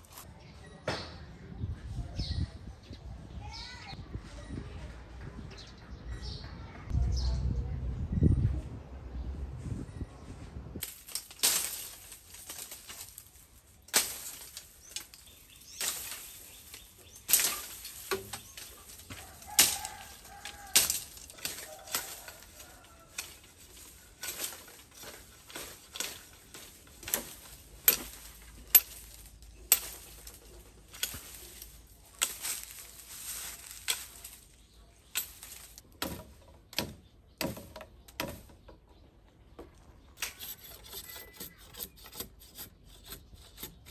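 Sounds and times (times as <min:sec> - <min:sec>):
machete chopping bamboo: 0:13.8 - 0:30.4, 0:35.2 - 0:38.5.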